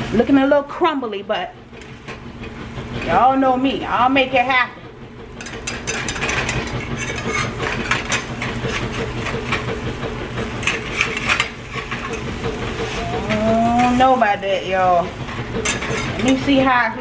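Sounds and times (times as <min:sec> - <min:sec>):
steady low hum: 0:00.0 - 0:17.0
metal spatula scraping frying pan: 0:05.4 - 0:09.8, 0:10.4 - 0:16.8.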